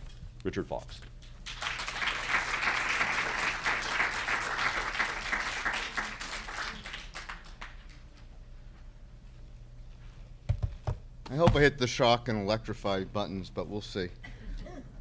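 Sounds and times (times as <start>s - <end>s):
audience applauding: 1.4s - 8.0s.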